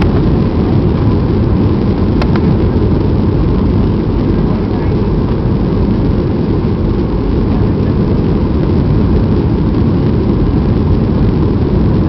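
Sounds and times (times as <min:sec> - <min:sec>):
jet engine rumble in cabin: 0:00.0 - 0:12.0.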